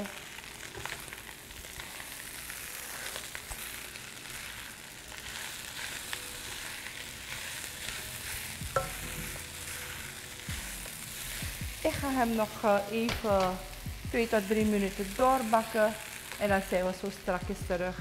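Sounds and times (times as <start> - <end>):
rice sizzling in a wok: 0.0 - 17.4
spatula scraping a pan: 0.7 - 12.8.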